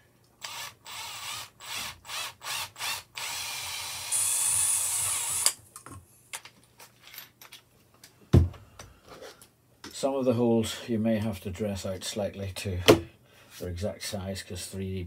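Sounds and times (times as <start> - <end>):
power drill drilling plastic: 0.4 - 5.5.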